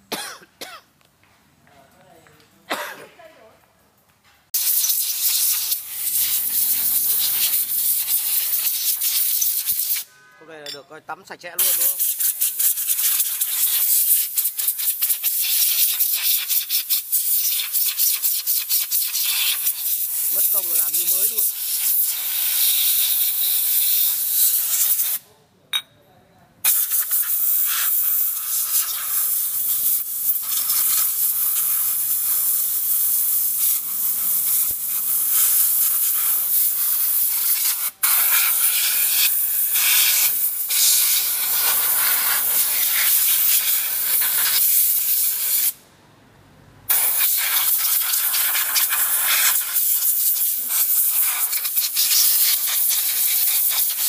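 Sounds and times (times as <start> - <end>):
compressed air blow gun hissing: 4.6 - 10.1, 11.6 - 25.2, 26.7 - 45.8, 46.9 - 54.0.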